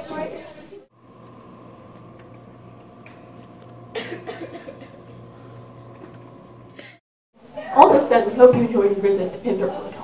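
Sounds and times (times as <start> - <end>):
steady electrical hum: 1.0 - 7.0.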